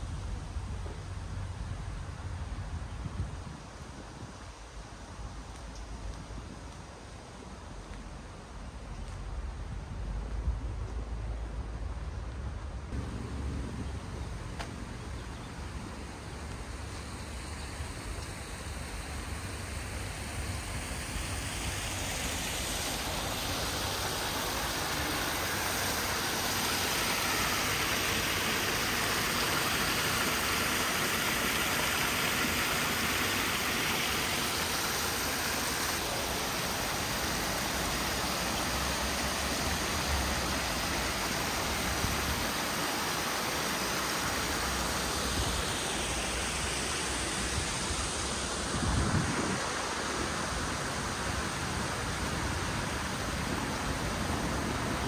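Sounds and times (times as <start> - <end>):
waterfall rushing: 18.6 - 55.0.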